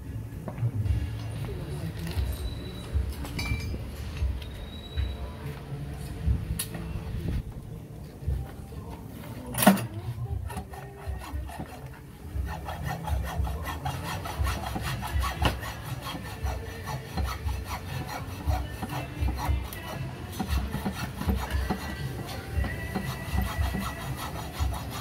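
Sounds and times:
hand saw cutting wood: 9.6 - 25.0.

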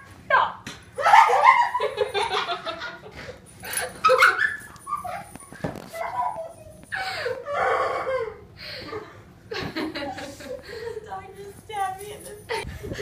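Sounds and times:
girls stifled laughter: 1.0 - 5.3, 6.0 - 11.1
girls drawn-out cries: 6.0 - 9.1.

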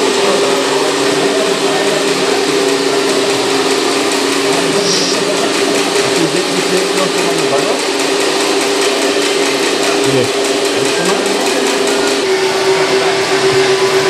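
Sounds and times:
electric whine of hydraulic pump: 0.0 - 14.0
machine noise hiss: 0.0 - 14.0.

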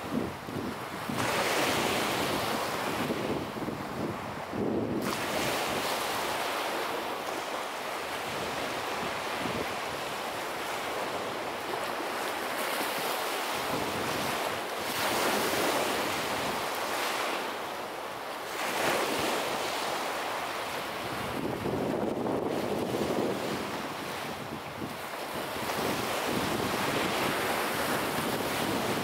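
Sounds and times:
waves washing up a beach: 0.0 - 29.0.

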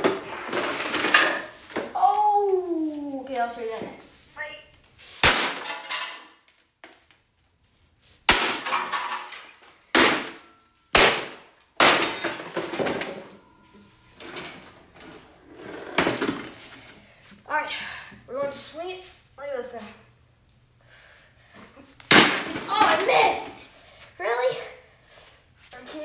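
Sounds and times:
sledgehammer smashing coffee maker: 5.2 - 6.2, 8.3 - 10.4, 11.0 - 13.3, 22.1 - 23.2
breaking parts clattering: 5.2 - 7.4, 8.3 - 11.0, 11.8 - 13.5.

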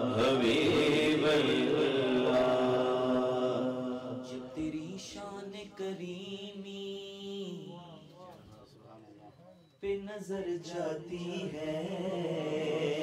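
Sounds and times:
men singing through microphones: 0.0 - 8.3, 9.8 - 13.0.

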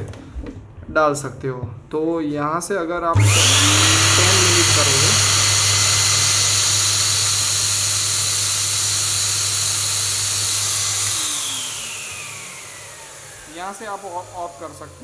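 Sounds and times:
fogger motor humming and hissing: 3.2 - 15.0
motor winding down whine: 3.2 - 15.0.

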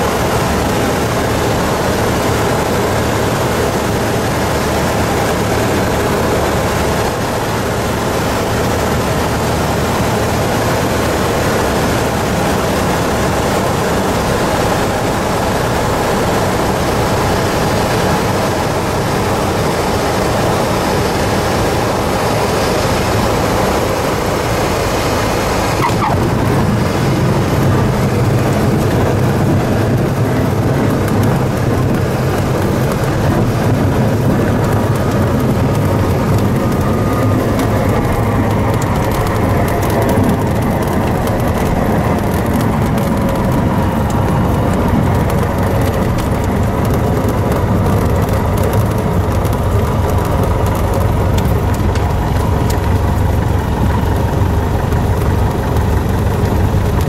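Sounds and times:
propeller engine drone: 0.0 - 57.0.

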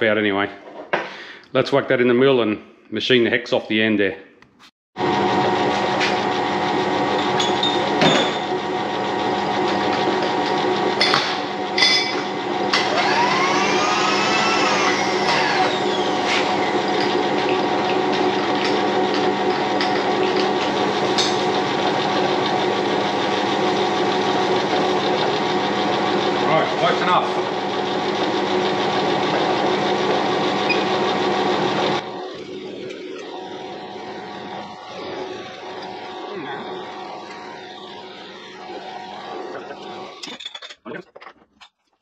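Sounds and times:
machine motor humming: 5.0 - 40.3
rising and falling whine: 12.7 - 17.7, 28.7 - 40.4.

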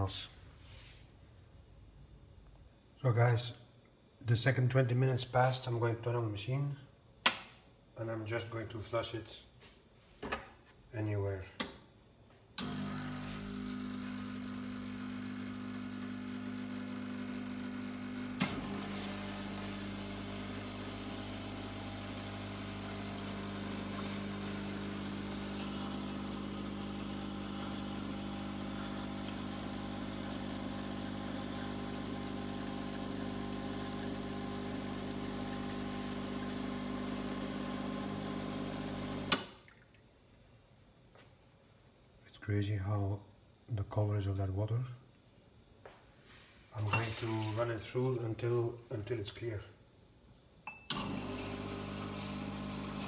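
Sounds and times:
espresso machine pump humming: 12.6 - 39.4, 50.9 - 53.0.

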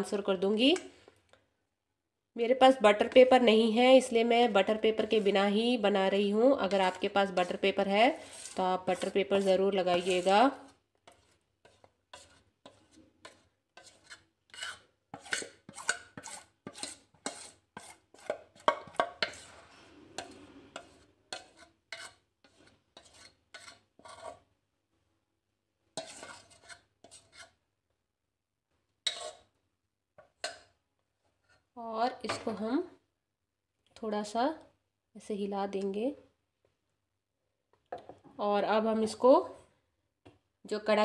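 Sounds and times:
utensil scraping metal bowl: 2.9 - 24.5, 25.9 - 27.6, 29.0 - 29.6.

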